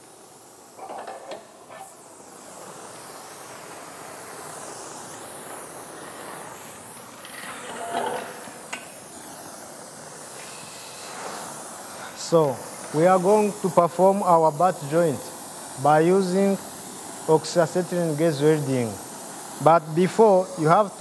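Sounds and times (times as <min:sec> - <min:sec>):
welding torch flame hissing: 0:00.0 - 0:21.0.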